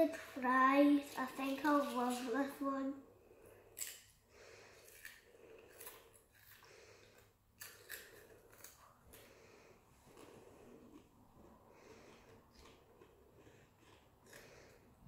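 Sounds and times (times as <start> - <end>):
child chewing crunchy snack: 3.4 - 15.0.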